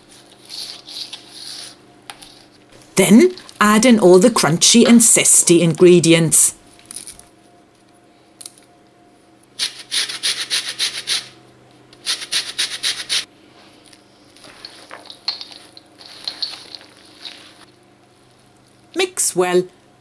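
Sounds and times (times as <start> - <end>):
rustling in steel bowl: 14.2 - 18.9.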